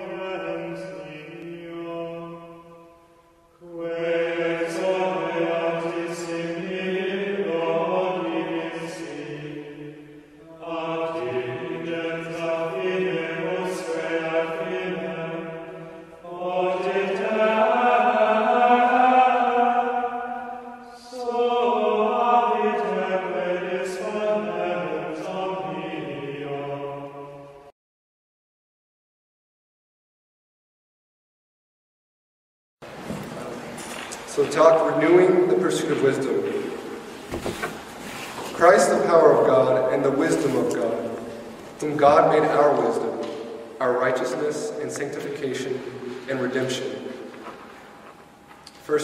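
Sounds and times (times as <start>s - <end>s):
male voices chanting: 10.4s - 27.0s.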